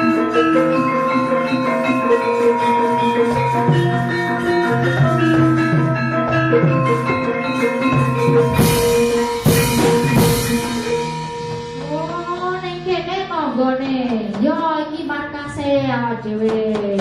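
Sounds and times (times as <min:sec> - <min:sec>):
gamelan playing: 0:00.0 - 0:14.6
loud clashing strikes: 0:02.7 - 0:14.6.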